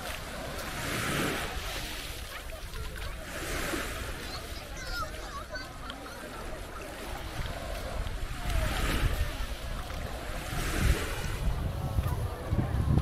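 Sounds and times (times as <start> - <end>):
small waves washing onto beach: 0.0 - 13.0
wind rumbling on microphone: 6.5 - 13.0.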